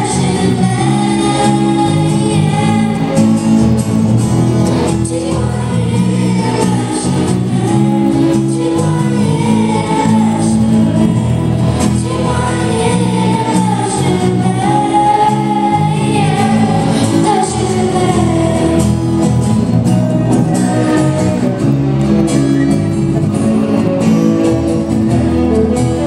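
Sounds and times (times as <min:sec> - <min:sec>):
girls singing together: 0:00.0 - 0:03.7, 0:04.9 - 0:19.2
acoustic guitar: 0:00.0 - 0:26.0.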